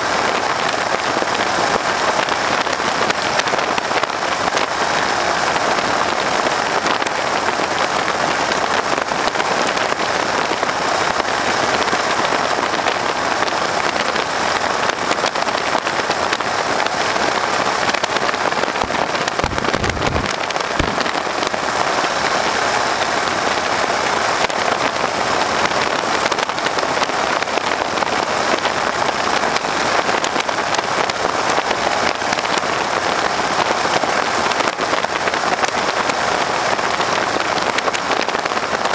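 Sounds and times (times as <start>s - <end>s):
airstream and engine noise: 0.0s - 38.9s
wind buffeting microphone: 15.7s - 23.7s.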